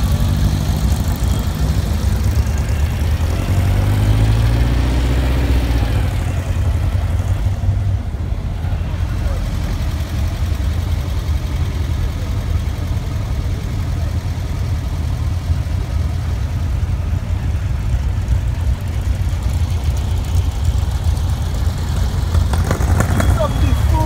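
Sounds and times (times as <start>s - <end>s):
engines running low rumble: 0.0s - 24.0s.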